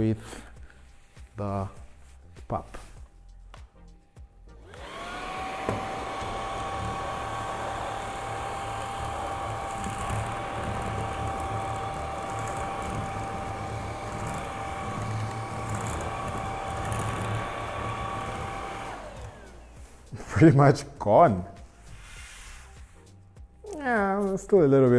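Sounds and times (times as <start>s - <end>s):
vacuum cleaner motor whine: 4.6s - 20.2s.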